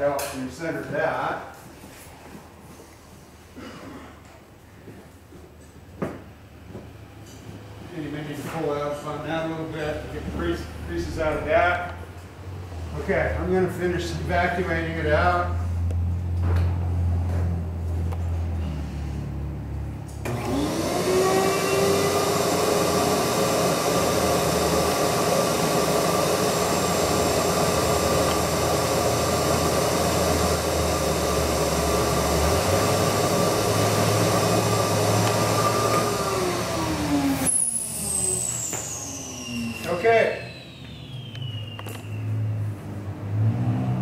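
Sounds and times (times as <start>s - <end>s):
vacuum motor whine: 20.2s - 42.7s.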